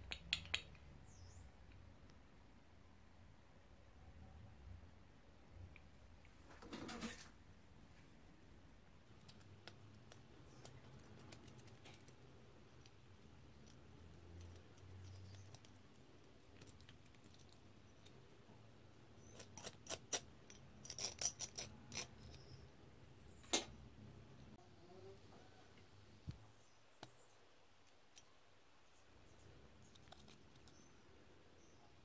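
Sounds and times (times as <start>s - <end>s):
metal pick clicking and scraping: 19.2s - 22.6s.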